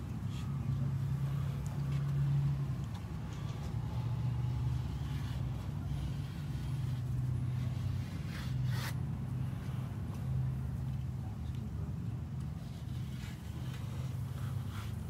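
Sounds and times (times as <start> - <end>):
idling motor hum: 0.0 - 8.6.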